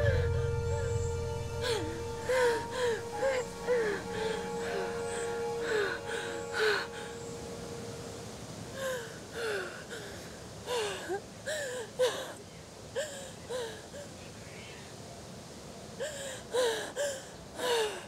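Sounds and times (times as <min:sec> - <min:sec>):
music drone: 0:00.0 - 0:08.9.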